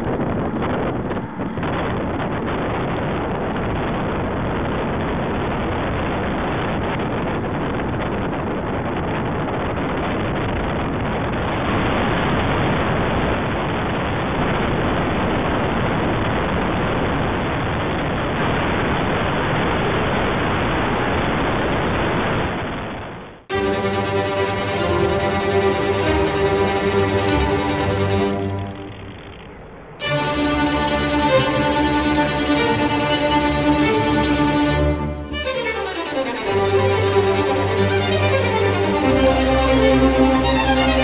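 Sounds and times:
wind rushing over microphone: 0.0s - 19.4s.

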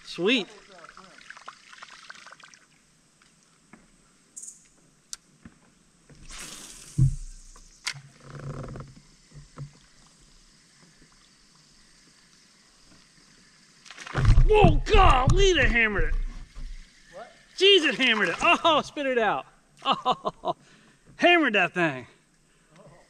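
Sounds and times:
dull thud: 7.0s - 7.4s, 14.1s - 16.8s.

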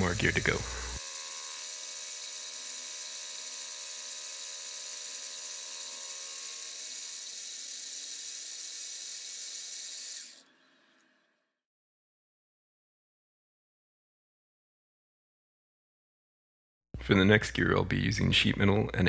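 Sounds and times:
mill spindle whine: 0.0s - 11.1s.

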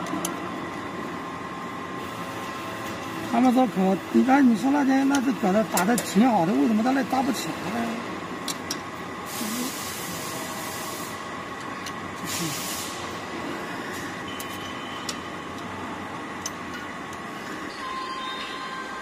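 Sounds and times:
air hissing: 9.2s - 11.3s, 12.2s - 14.2s.

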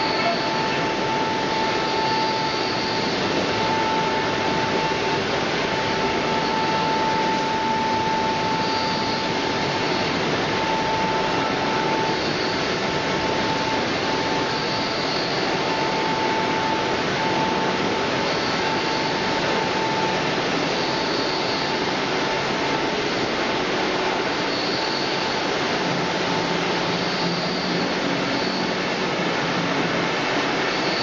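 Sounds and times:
high steady whine: 0.0s - 31.0s
machinery running: 0.0s - 31.0s.

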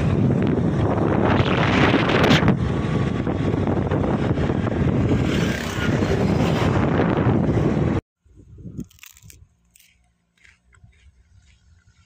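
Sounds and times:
wind buffeting microphone: 0.0s - 9.5s
rumble of road vehicles: 0.0s - 12.0s.

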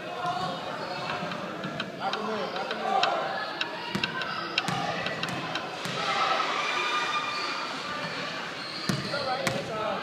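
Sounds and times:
crowd voices: 0.0s - 10.0s
basketball bouncing: 3.8s - 6.0s, 8.9s - 9.7s.

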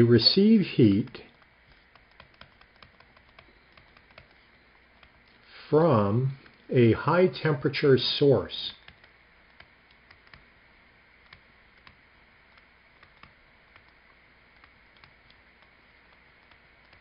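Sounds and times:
faint low hum: 0.0s - 17.0s
stylus tapping on tablet screen: 1.3s - 5.3s, 8.8s - 10.5s, 11.2s - 17.0s.

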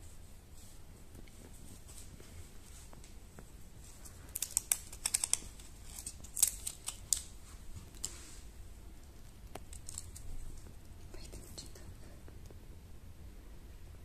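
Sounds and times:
paper crinkling and peeling: 4.0s - 8.4s, 9.6s - 10.7s.

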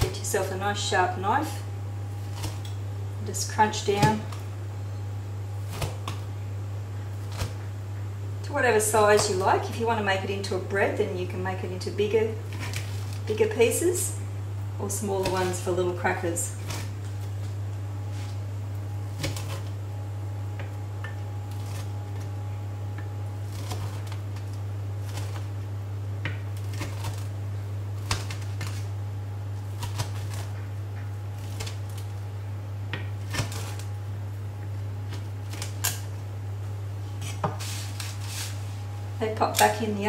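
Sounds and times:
steady low hum: 0.0s - 40.0s
knife crunching through cracker: 23.4s - 24.3s, 26.6s - 27.3s.

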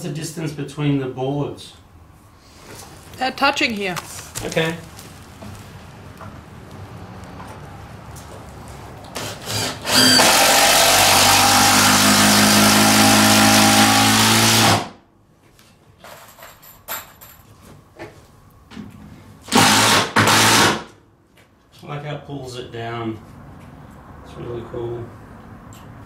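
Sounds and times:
cordless drill driving screw: 9.2s - 14.8s, 19.5s - 20.8s.

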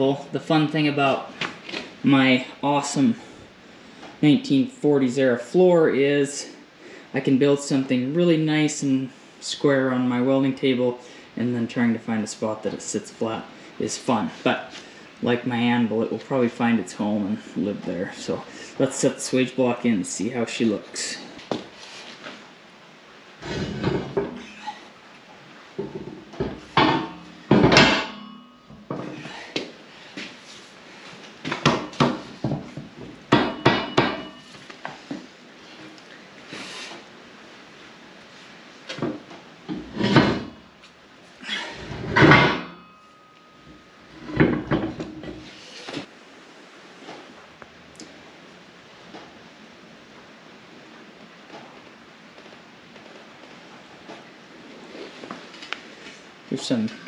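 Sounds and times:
metal scraping: 23.4s - 24.9s, 39.7s - 40.9s
metal block clanking: 25.8s - 29.2s, 41.8s - 45.4s
metallic ring: 26.7s - 29.3s, 33.4s - 34.6s, 42.1s - 45.4s.

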